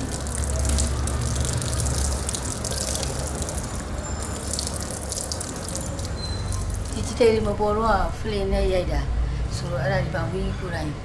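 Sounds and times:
water running and splashing: 0.0 - 7.5.

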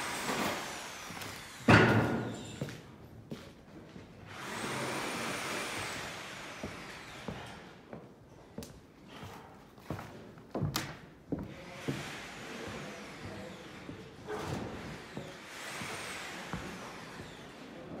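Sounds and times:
sharp knocks and clanks: 1.6 - 2.7.

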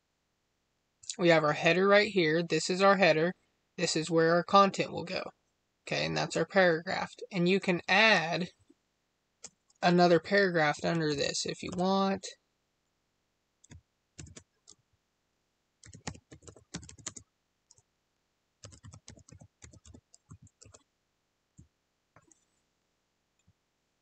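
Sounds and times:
keyboard keys clicking: 13.6 - 14.8, 15.8 - 17.8, 18.6 - 20.8.

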